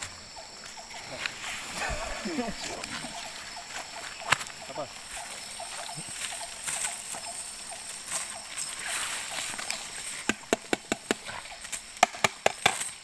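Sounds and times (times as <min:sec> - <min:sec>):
steady high hiss: 0:00.0 - 0:12.0
net weights clicking on stones: 0:06.6 - 0:13.0.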